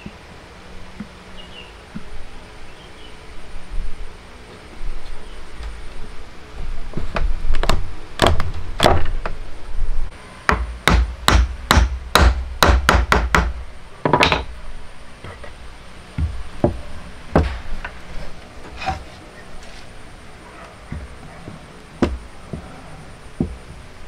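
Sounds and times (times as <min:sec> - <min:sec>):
sharp wooden knocks: 0:07.0 - 0:09.4, 0:10.5 - 0:14.5, 0:16.2 - 0:17.6, 0:22.0 - 0:22.8, 0:23.4 - 0:23.8.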